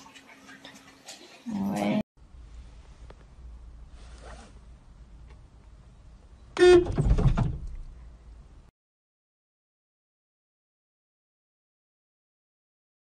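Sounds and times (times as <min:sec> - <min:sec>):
low steady hum: 0:01.5 - 0:08.7
car horn blast: 0:06.6 - 0:07.0.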